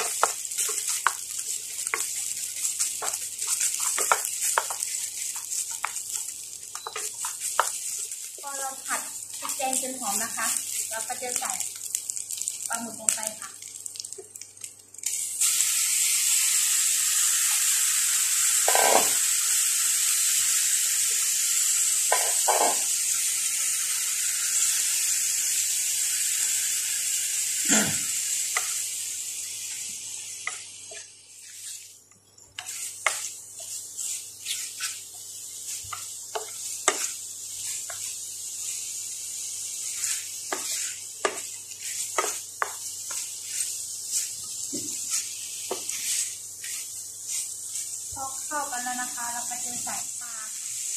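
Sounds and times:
wooden spatula knocking and scraping pan: 0:00.0 - 0:08.6, 0:18.7 - 0:19.2, 0:22.1 - 0:22.8, 0:32.6 - 0:38.1, 0:40.0 - 0:48.3
squid sizzling in hot oil: 0:00.0 - 0:50.9.

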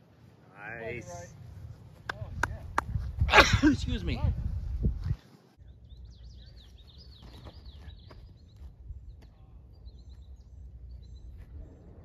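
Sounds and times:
songbirds chirping: 0:05.3 - 0:12.0.

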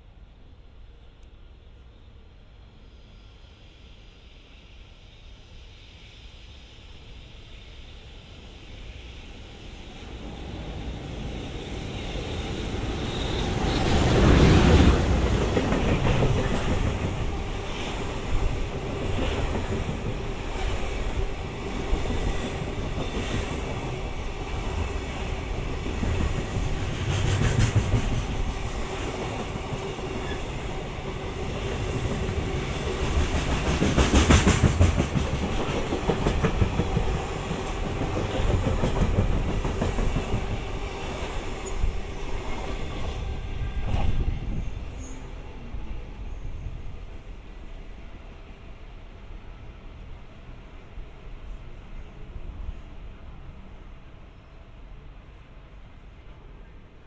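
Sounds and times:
train rumble: 0:04.4 - 0:57.0
train wheels clattering over rail joints: 0:33.0 - 0:40.6.

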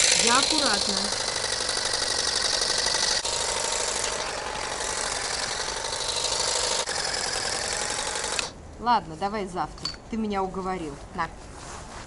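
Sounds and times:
electric grass trimmer running: 0:00.0 - 0:08.6.

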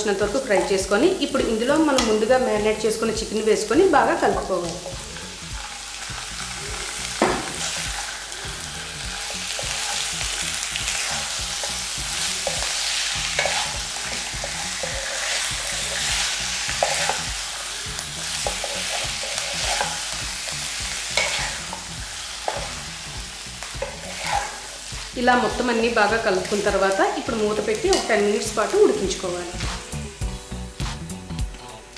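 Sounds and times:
chicken sizzling in hot oil: 0:00.0 - 0:31.2
wooden spatula scraping pan: 0:13.3 - 0:17.3, 0:18.4 - 0:20.0, 0:21.2 - 0:21.9, 0:23.8 - 0:25.6.

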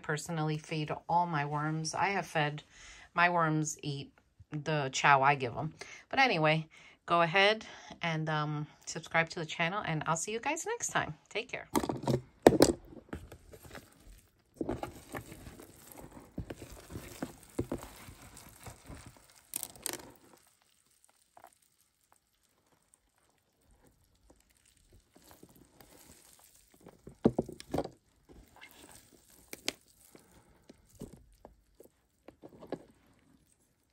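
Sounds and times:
hands rustling through worm bedding: 0:13.5 - 0:21.3, 0:28.3 - 0:33.6.

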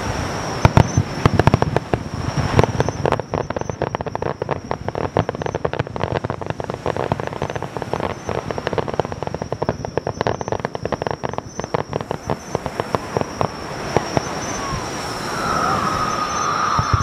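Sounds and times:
fireworks cracking and banging: 0:00.0 - 0:17.0.

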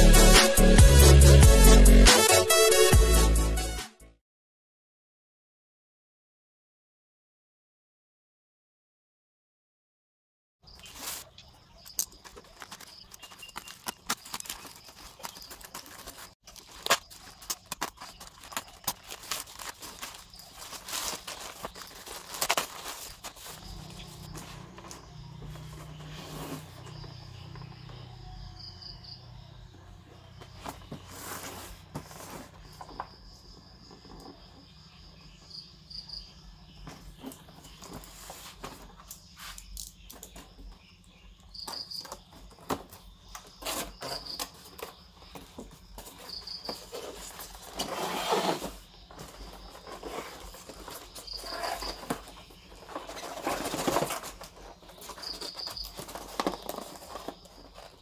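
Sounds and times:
cricket chirping: 0:10.6 - 0:58.0
cardboard sliding scrapes: 0:10.8 - 0:11.3, 0:19.4 - 0:27.2, 0:30.8 - 0:32.8, 0:46.8 - 0:52.2.

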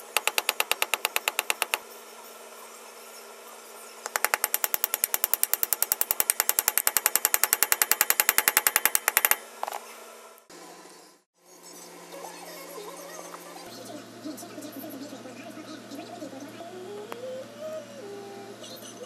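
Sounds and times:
power tool rattling: 0:04.1 - 0:09.4.

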